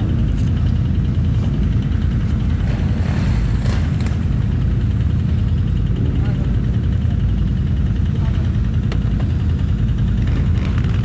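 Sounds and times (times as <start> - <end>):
atv engine rumbling: 0.0 - 11.0.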